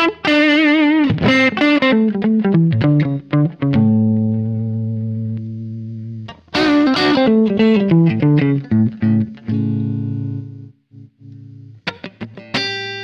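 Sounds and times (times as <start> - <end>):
electric guitar playing: 0.0 - 13.0.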